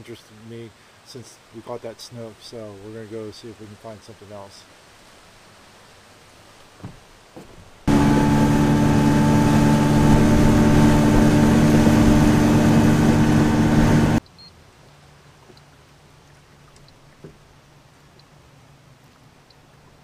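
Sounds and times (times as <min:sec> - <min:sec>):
wind and water rushing: 0:00.0 - 0:14.2
outboard motor running: 0:07.9 - 0:14.2.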